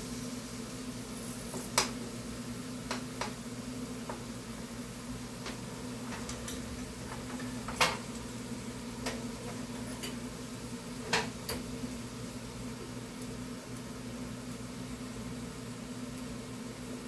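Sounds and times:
spoon tapping against bowl and pan: 2.9s - 3.4s.

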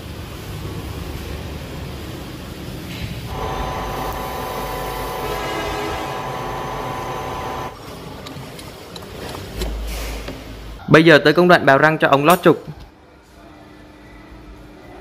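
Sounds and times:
low machine hum: 3.3s - 7.8s
metal lathe cutting whine: 3.3s - 7.8s.

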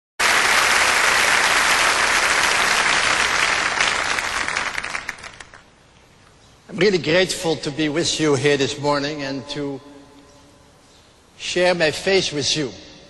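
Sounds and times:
crowd applauding: 0.2s - 5.7s.

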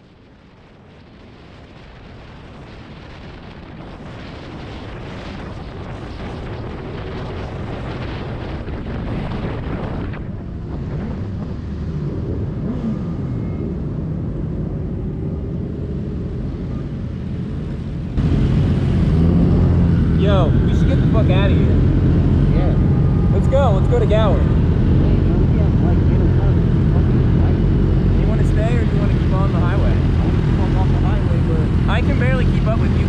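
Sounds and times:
road rumble: 0.0s - 33.0s
wind rushing over microphone: 0.0s - 33.0s
motorcycle engines revving: 9.1s - 33.0s.

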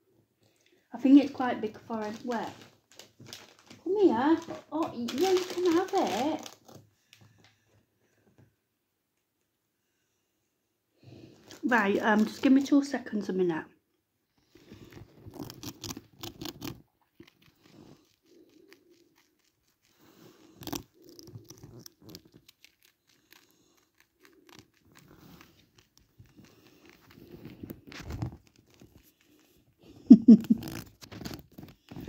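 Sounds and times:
rat gnawing crunchy crisp: 1.9s - 6.8s, 14.4s - 32.0s.

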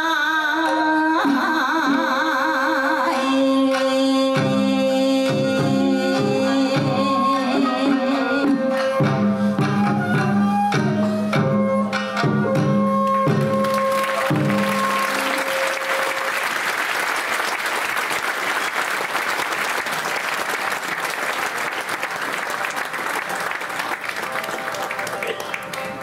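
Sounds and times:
shamisen and taiko music: 0.0s - 16.6s
audience applauding: 13.0s - 26.0s.

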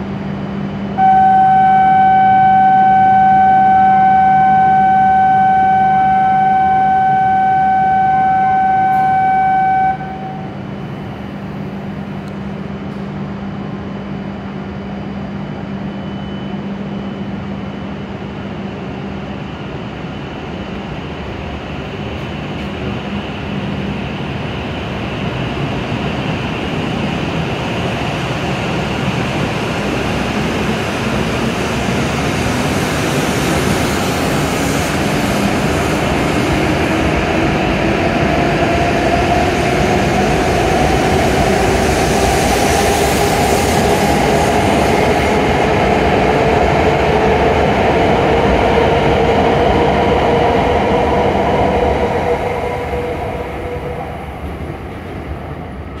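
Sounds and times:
rumble of train wheels: 0.0s - 56.0s
train traction motors whining: 0.8s - 13.0s.

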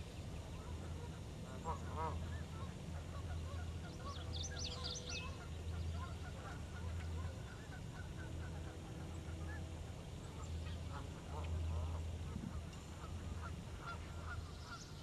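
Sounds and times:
steady low hum: 0.0s - 15.0s
distant waterfowl calls: 0.3s - 15.0s
small birds chirping: 1.7s - 8.2s.

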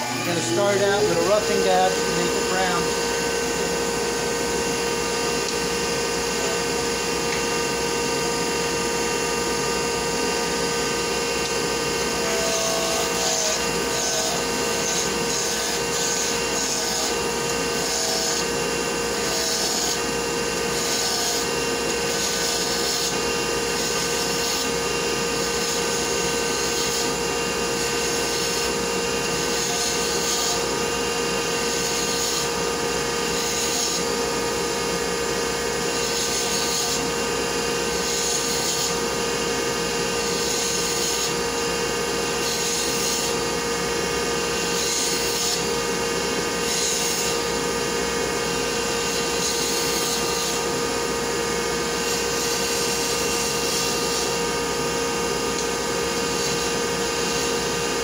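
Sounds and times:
wood lathe machine hum: 0.0s - 58.0s.

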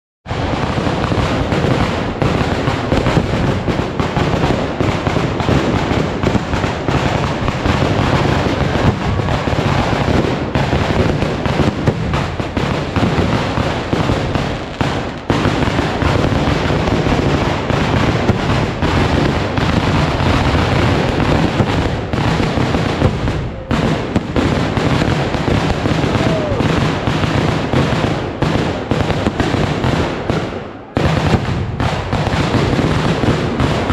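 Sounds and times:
firecracker explosions: 0.2s - 33.9s.

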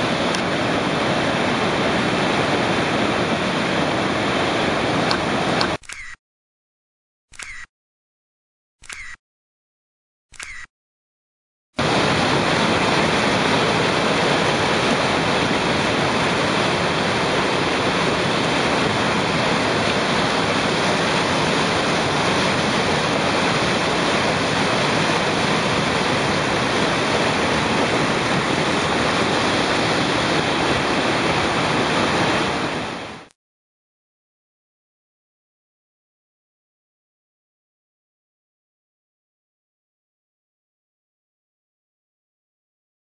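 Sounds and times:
river rushing over rapids: 0.0s - 5.8s, 11.8s - 33.3s.

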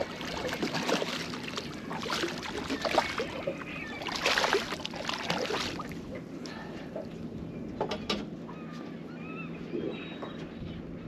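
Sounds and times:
water splashing around boat: 0.0s - 7.2s.

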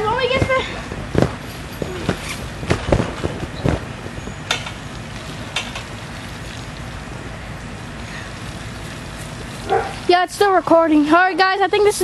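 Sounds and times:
bodies landing on trampoline: 0.2s - 3.9s
water spraying: 4.7s - 11.1s.

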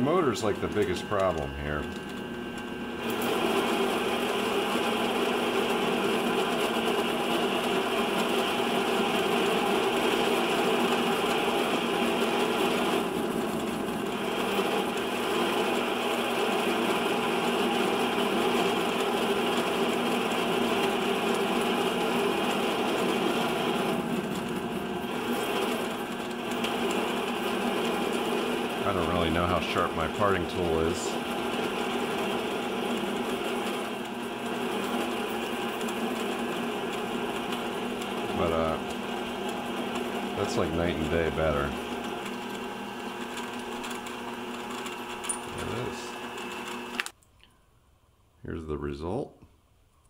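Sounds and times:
lathe motor and spindle hum: 0.0s - 47.1s.

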